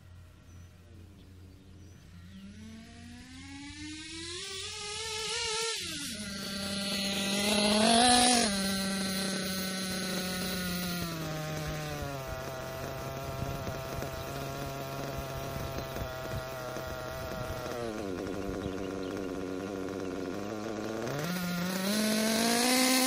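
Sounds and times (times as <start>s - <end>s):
model car engine revving: 0.8s - 23.0s.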